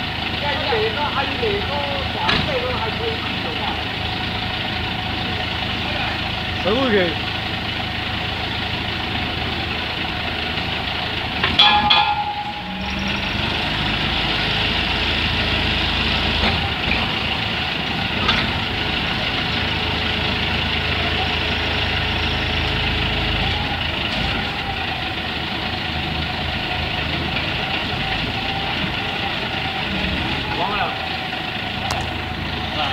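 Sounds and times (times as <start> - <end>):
truck engine running: 0.0 - 32.9
metal clatter: 11.4 - 13.9.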